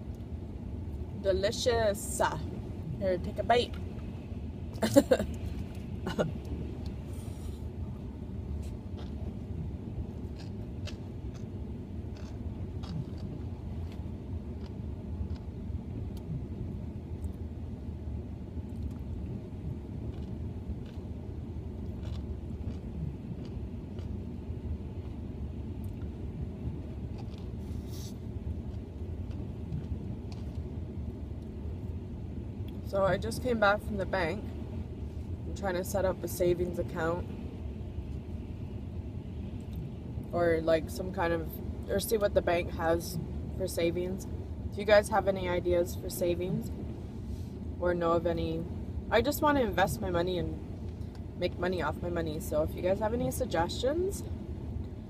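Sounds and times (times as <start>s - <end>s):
chewing mouth sounds: 8.6s - 16.4s, 20.0s - 21.1s, 21.8s - 24.3s, 25.8s - 30.7s.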